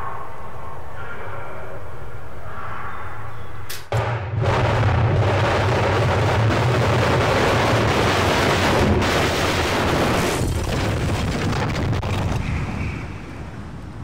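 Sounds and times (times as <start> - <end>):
building demolition rumble: 3.9 - 14.0.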